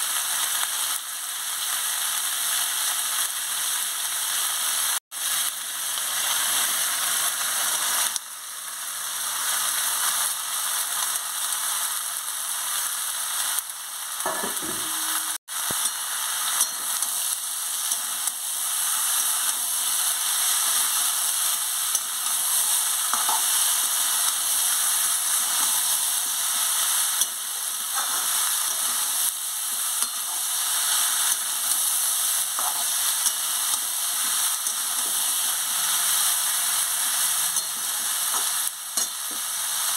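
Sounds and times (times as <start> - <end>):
vegetables sizzling in oil: 0.0 - 39.9
metal spatula scraping a pan: 27.1 - 29.1, 32.5 - 35.5.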